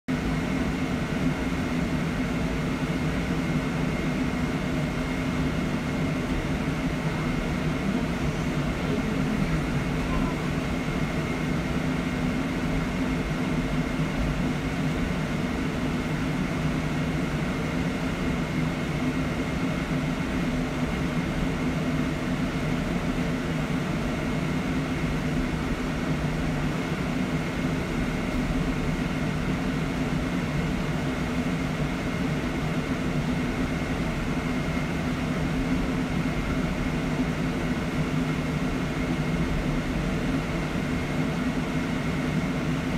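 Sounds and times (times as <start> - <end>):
faint steady high tone: 9.9 - 10.6.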